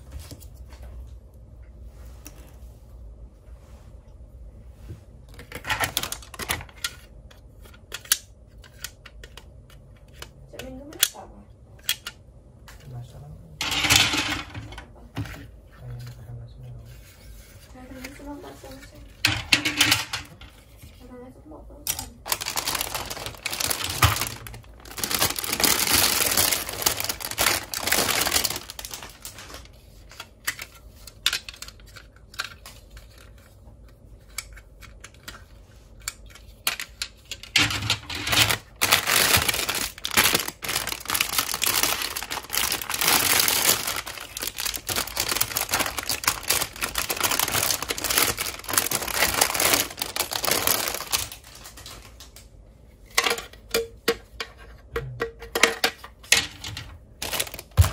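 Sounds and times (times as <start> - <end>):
plastic bags crinkling: 5.3 - 7.0, 13.6 - 14.9, 21.9 - 33.3, 36.6 - 52.5, 56.4 - 57.9.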